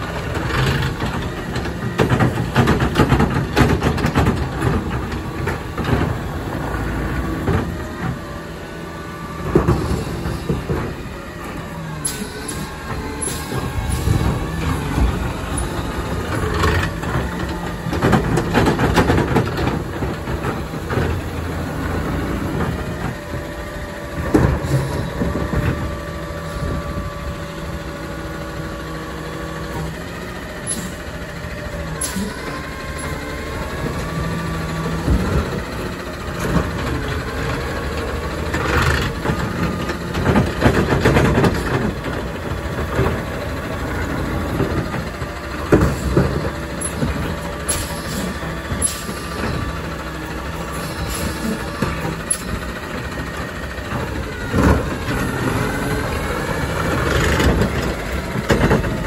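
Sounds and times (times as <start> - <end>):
garbage carts knocking and banging: 0.0 - 59.0
hydraulics whining: 0.0 - 59.0
truck engine under load: 0.0 - 59.0.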